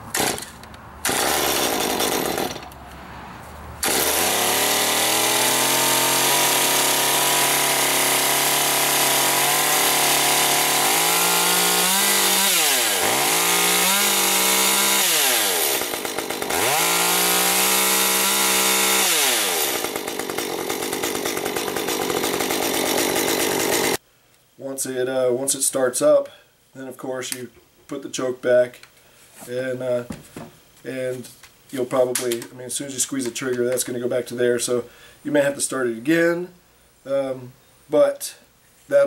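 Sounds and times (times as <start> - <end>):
chainsaw engine running: 0.1 - 2.8, 3.8 - 24.0.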